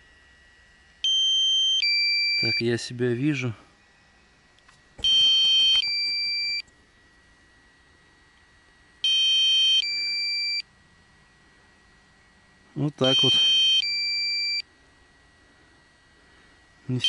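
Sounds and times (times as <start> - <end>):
two-tone electronic beeps: 5.0 - 6.6, 13.0 - 14.6.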